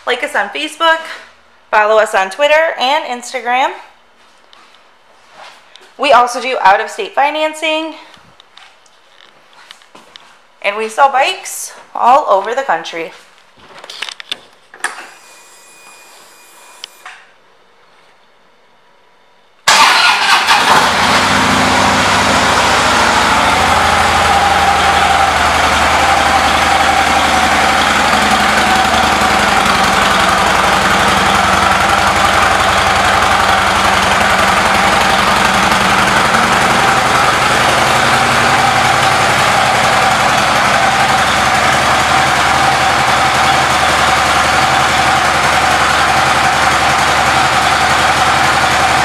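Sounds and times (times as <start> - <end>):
motorcycle engine starting and idling: 19.6 - 49.0.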